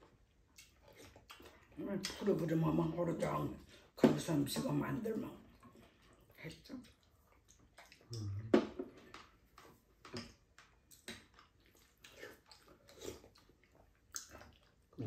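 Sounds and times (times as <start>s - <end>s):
chewing and mouth smacks: 0.0s - 2.5s, 5.5s - 15.0s.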